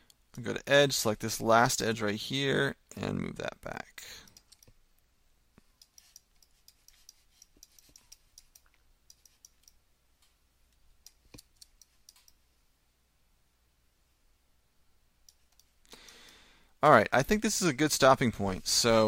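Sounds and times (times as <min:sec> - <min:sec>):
computer mouse and keyboard clicking: 0:04.2 - 0:04.8, 0:05.6 - 0:09.8, 0:11.0 - 0:12.4.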